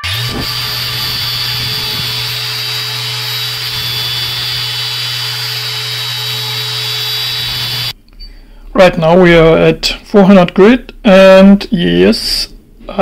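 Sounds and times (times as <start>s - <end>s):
orbital sander on steel: 0.0s - 8.0s.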